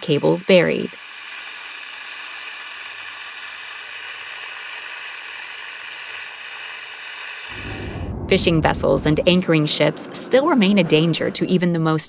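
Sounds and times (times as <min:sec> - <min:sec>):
faint low hum: 0:07.5 - 0:10.8.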